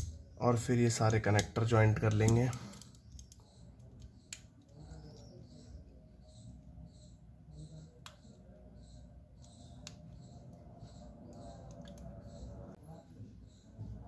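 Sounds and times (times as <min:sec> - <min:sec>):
connector snap clicks: 0:01.1 - 0:03.4.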